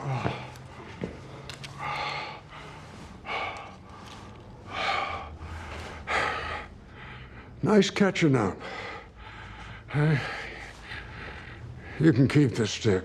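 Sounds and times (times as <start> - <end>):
man breathing hard: 0.0 - 7.6, 8.6 - 12.3.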